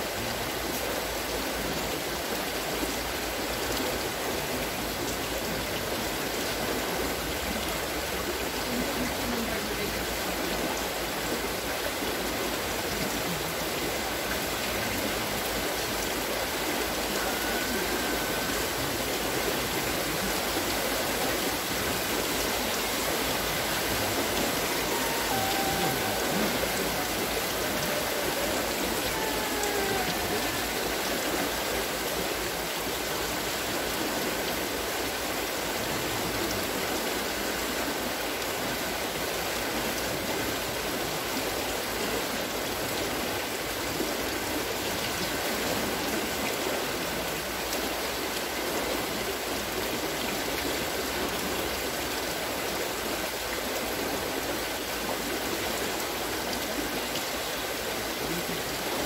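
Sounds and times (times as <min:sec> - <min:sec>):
water pouring and splashing: 0:10.6 - 0:36.7.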